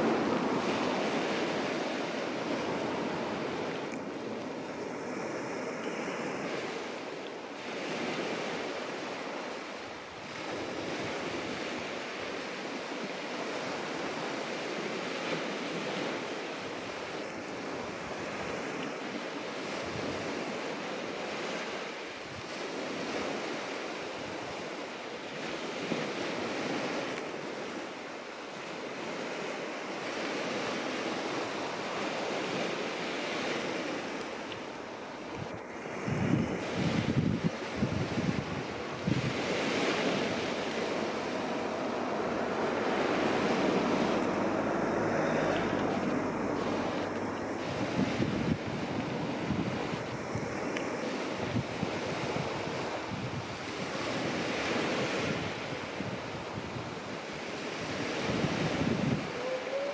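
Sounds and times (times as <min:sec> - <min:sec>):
sea waves washing onto beach: 0:00.0 - 0:59.9
wind buffeting microphone: 0:28.5 - 0:59.9.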